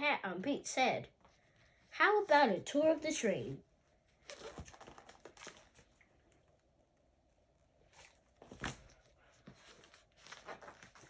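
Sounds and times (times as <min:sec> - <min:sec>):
soft paper rustles: 0:04.0 - 0:07.1, 0:07.8 - 0:11.0
page turning flap: 0:04.2 - 0:06.0, 0:08.0 - 0:11.0.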